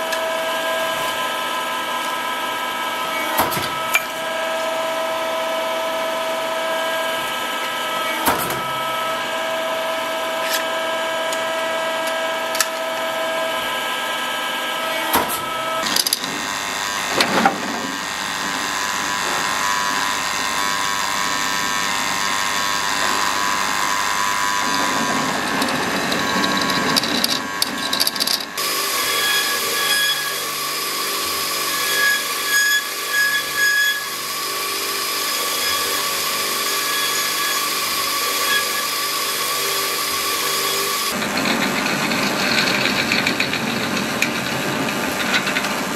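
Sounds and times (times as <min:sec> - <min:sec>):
drill cutting into steel: 0:14.8 - 0:41.2
hydraulic press humming: 0:14.9 - 0:45.9
belt grinder grinding metal: 0:15.5 - 0:45.7.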